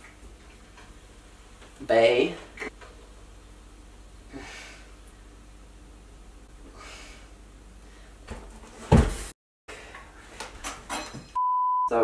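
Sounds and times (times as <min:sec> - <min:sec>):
loud thump on floor: 0:08.9 - 0:09.3.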